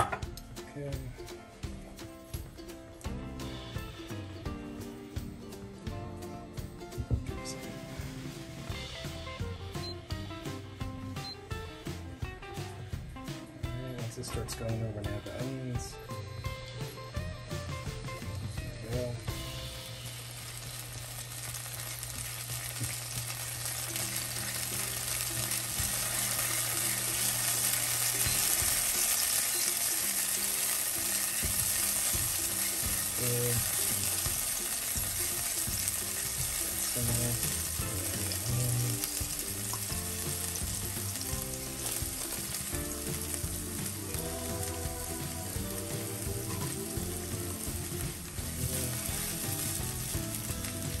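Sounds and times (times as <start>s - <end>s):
garlic sizzling in hot oil: 16.8s - 51.0s
spatula stirring in skillet: 20.0s - 51.0s.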